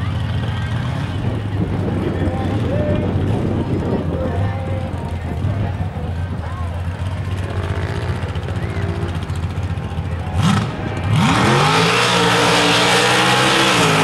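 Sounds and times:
truck engine revving: 0:06.6 - 0:14.0.

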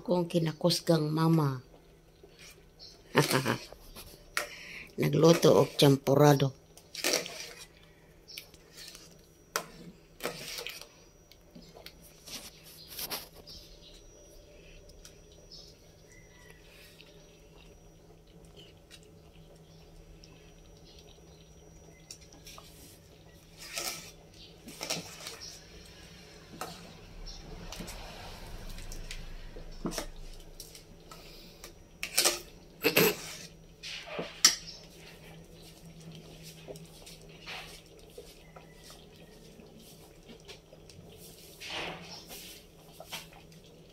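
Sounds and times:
faint steady hum: 0:00.0 - 0:43.9
metal spoon scraping a pot: 0:06.9 - 0:07.8, 0:08.7 - 0:10.9, 0:23.5 - 0:25.6, 0:32.0 - 0:34.8.

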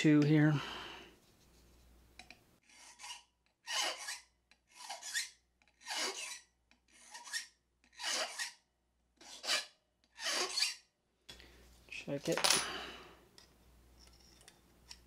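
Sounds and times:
hand file stroking metal: 0:02.6 - 0:08.6, 0:09.2 - 0:10.9.

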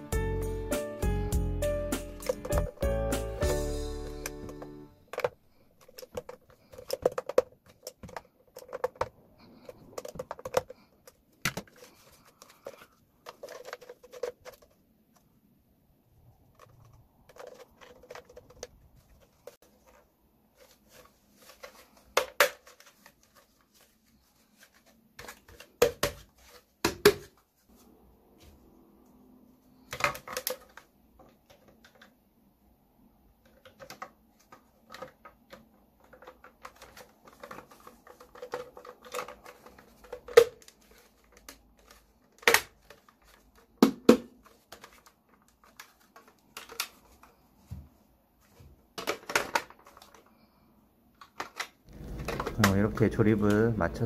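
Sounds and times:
plastic parts snapping: 0:04.0 - 0:14.8, 0:33.4 - 0:47.3
plastic parts clicking and rattling: 0:04.0 - 0:15.3, 0:16.4 - 0:27.4, 0:29.8 - 0:32.2, 0:33.4 - 0:47.7, 0:48.5 - 0:50.5, 0:51.1 - 0:54.0.

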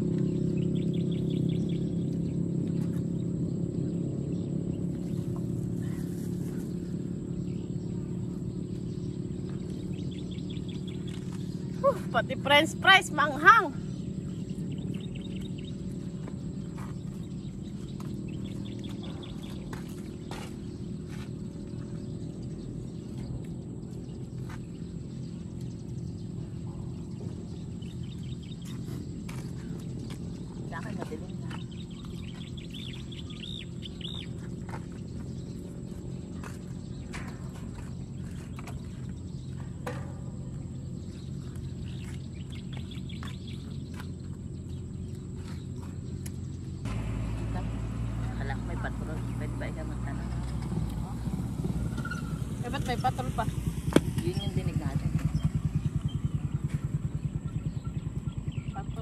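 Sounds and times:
steady low hum: 0:00.0 - 0:59.0
steady low rumble: 0:00.0 - 0:59.0
faint bird chirps: 0:13.4 - 0:49.6, 0:50.3 - 0:59.0.

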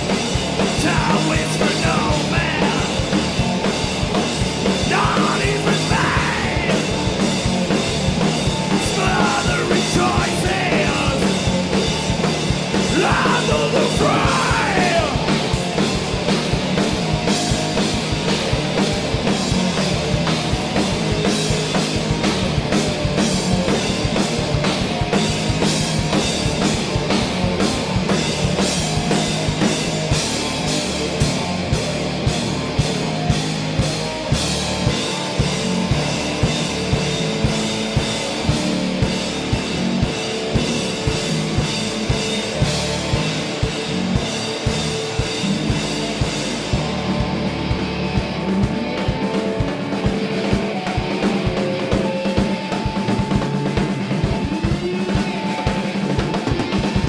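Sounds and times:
punk rock band playing: 0:00.0 - 0:57.0
shouted vocals: 0:04.9 - 0:06.9, 0:08.8 - 0:11.4, 0:12.8 - 0:15.4.

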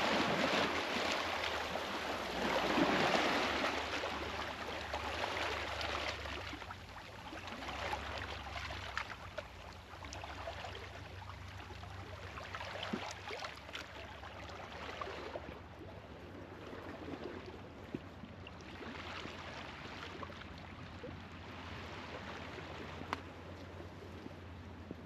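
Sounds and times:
sea waves washing on shore: 0:00.0 - 0:09.3.

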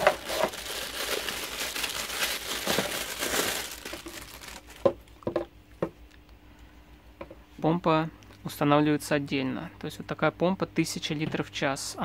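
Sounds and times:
plastic bag crinkling: 0:00.0 - 0:05.1.

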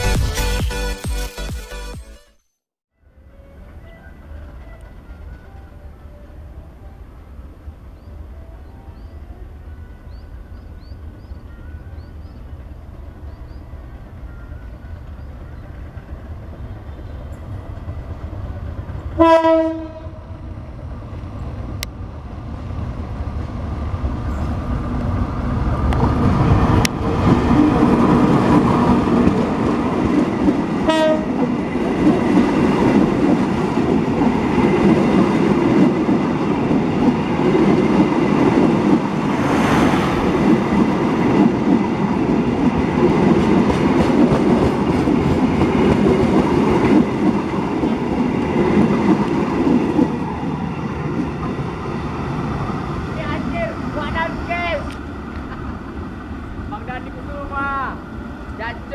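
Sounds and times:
diesel locomotive passing: 0:03.0 - 0:58.9
train horn blast: 0:19.2 - 0:20.5, 0:30.8 - 0:31.5.

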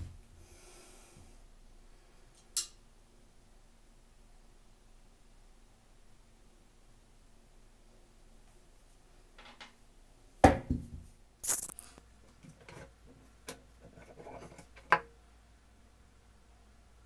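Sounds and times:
metal scrape: 0:13.8 - 0:15.0.

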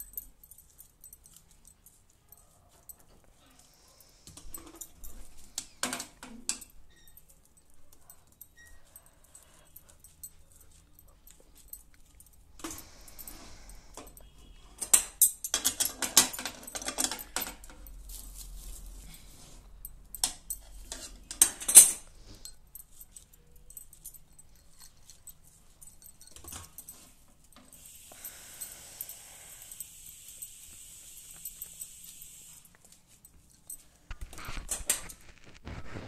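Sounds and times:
bangles jingling against pan: 0:00.0 - 0:35.2
steady hiss: 0:27.7 - 0:32.7
hand scraping puffed rice in pan: 0:34.1 - 0:36.0.

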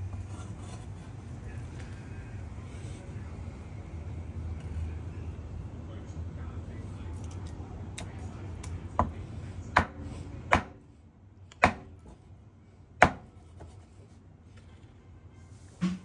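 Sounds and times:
cleaver chopping on wooden board: 0:09.8 - 0:10.8, 0:11.6 - 0:11.9, 0:13.0 - 0:13.3.

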